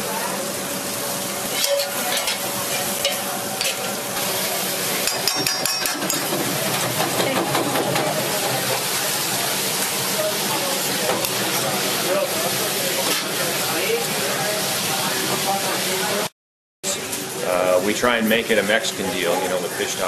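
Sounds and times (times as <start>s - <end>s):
fish sizzling in a pan: 0.0s - 7.0s, 8.1s - 15.9s.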